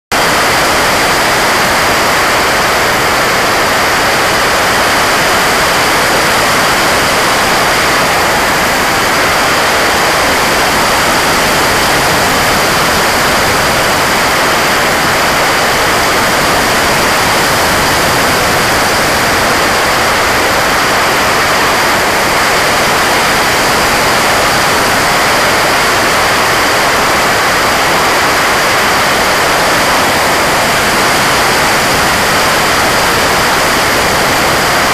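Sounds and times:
faint high whine: 0.1 - 34.9
drone propeller and airflow noise: 0.2 - 34.9.

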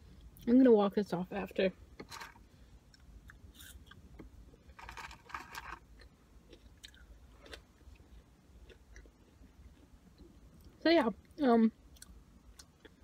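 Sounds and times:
chewing food: 2.9 - 10.8.

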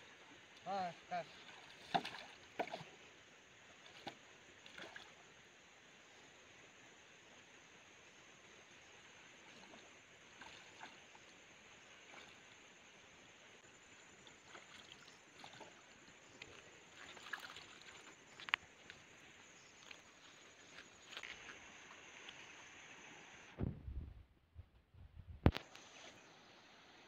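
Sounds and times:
low steady hiss: 0.0 - 27.0
water splashes and drips: 0.4 - 3.1, 3.7 - 5.2, 9.4 - 19.2, 19.8 - 23.0.

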